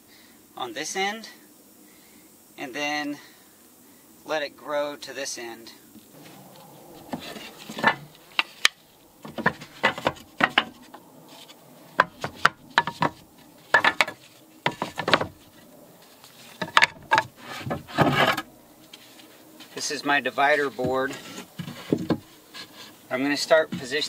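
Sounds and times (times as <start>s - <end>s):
wooden boards knocking and scraping: 6.9s - 15.6s, 16.4s - 18.5s, 20.7s - 24.0s.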